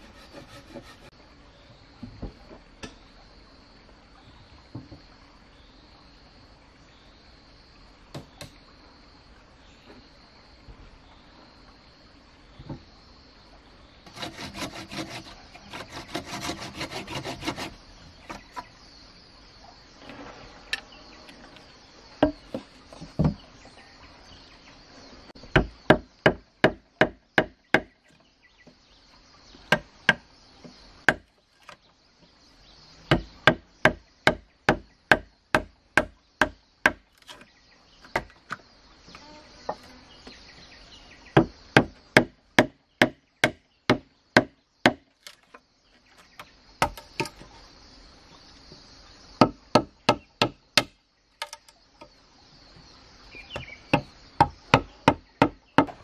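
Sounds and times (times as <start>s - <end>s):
hand saw cutting wood: 0.0s - 1.1s, 14.1s - 18.6s.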